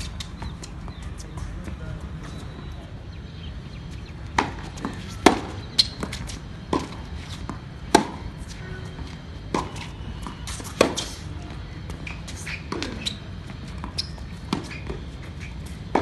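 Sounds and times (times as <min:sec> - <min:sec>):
tennis ball bouncing on court: 0:00.0 - 0:02.6, 0:04.0 - 0:16.0
low background noise: 0:00.0 - 0:16.0
tennis ball hit by rackets: 0:04.3 - 0:08.6, 0:09.4 - 0:11.2, 0:11.9 - 0:16.0.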